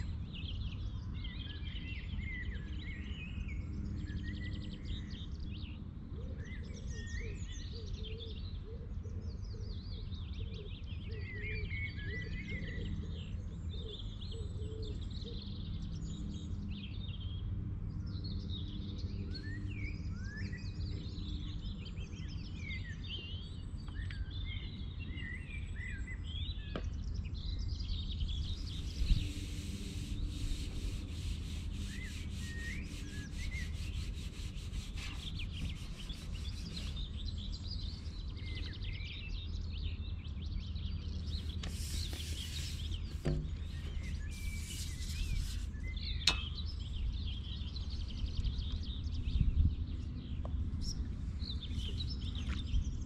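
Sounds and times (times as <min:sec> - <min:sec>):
small birds chirping: 0:18.3 - 0:53.0
rubbing close to microphone: 0:28.4 - 0:37.5, 0:41.3 - 0:46.4.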